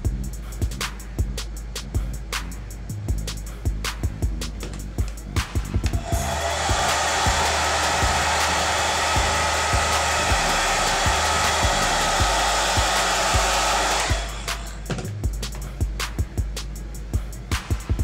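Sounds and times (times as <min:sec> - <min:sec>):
background music with steady beat: 0:00.0 - 0:18.0
hair dryer blowing: 0:05.9 - 0:15.0.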